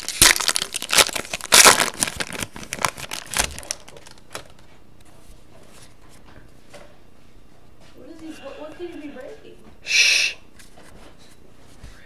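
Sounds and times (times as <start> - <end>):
wrapper crinkling and tearing: 0.0 - 4.6.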